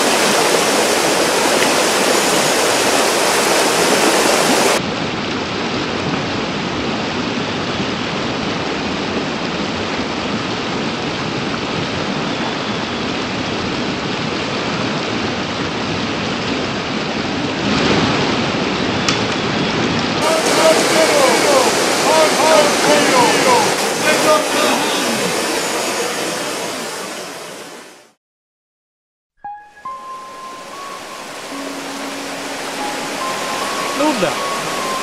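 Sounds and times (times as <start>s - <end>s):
water rushing over stones: 0.0s - 4.8s, 20.2s - 27.5s, 30.5s - 35.0s.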